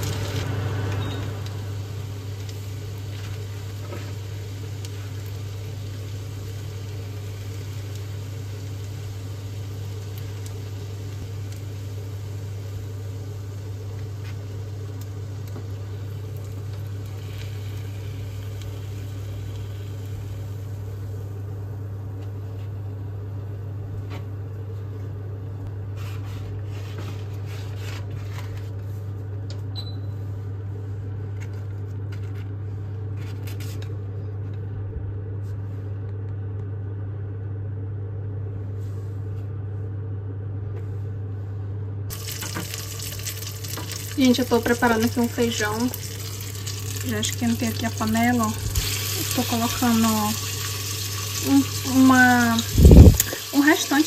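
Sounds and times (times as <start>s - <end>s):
low kitchen hum: 0.0s - 54.0s
faint sizzle-like hiss: 1.4s - 21.4s.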